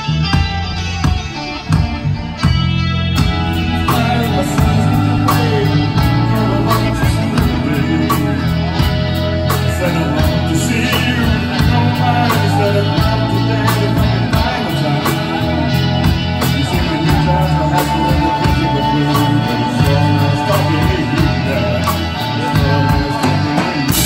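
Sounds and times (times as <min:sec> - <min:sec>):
drum kit hits: 0:00.0 - 0:09.8
held electric guitar note: 0:00.0 - 0:09.8
electric bass line: 0:00.0 - 0:24.0.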